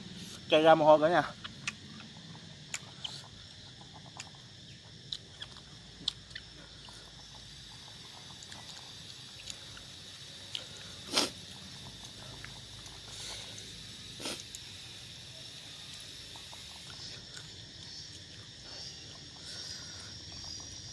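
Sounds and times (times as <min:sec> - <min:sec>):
man chewing with wet clicks: 0:01.3 - 0:13.2, 0:14.2 - 0:14.7, 0:15.8 - 0:20.9
loud hissing breath: 0:09.6 - 0:15.7, 0:18.6 - 0:20.5.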